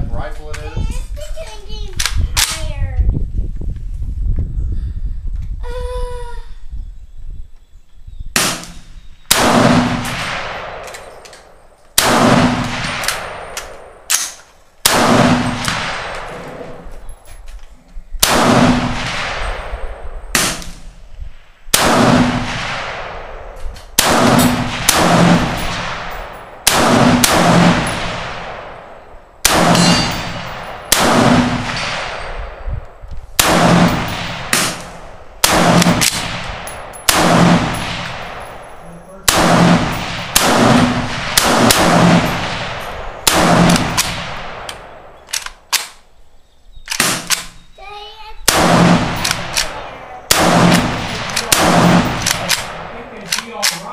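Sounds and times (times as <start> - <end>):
rifle gunshots: 8.4 - 16.9, 18.2 - 21.0, 21.7 - 32.6, 33.4 - 46.0, 46.9 - 47.6, 48.4 - 53.9.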